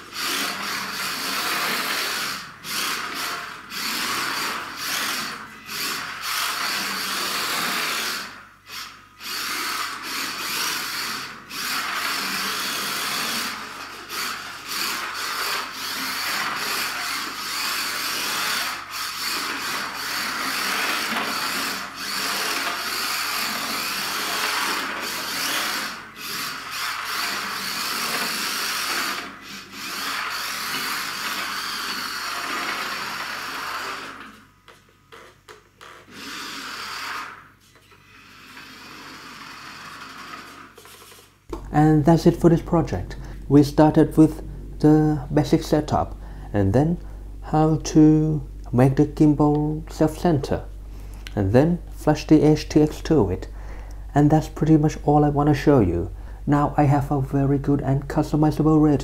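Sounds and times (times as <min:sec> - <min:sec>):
toy car electric motor whirring: 0:00.0 - 0:41.4.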